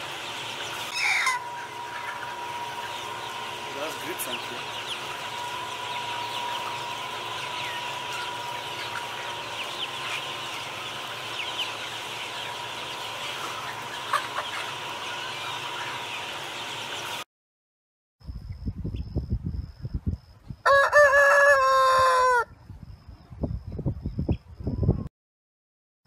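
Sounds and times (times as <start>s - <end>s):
chickens clucking and chirping: 0.0s - 17.3s, 18.4s - 25.1s.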